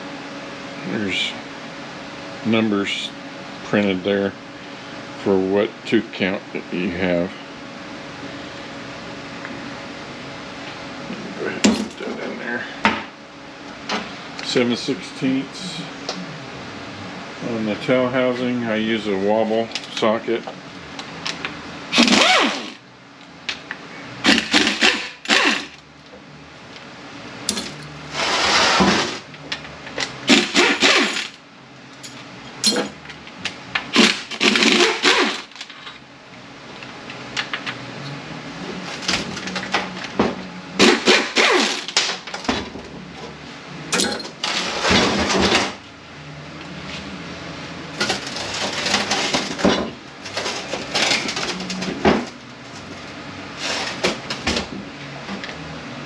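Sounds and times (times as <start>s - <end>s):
pneumatic wrench bursts: 21.9s - 22.8s, 24.2s - 25.8s, 30.3s - 31.4s, 33.9s - 35.6s, 40.8s - 42.0s.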